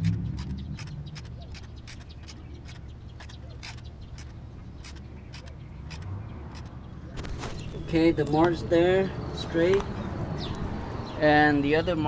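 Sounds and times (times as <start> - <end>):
socket wrench clicking: 0.1 - 6.8.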